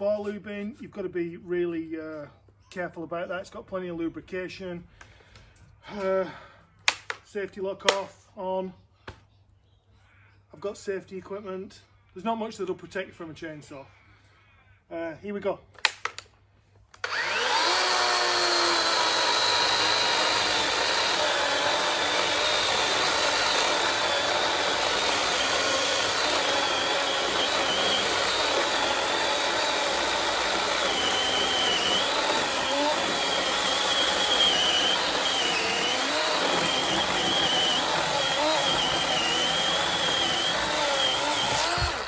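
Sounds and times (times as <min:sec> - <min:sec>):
chainsaw cutting log: 0:17.0 - 0:42.0.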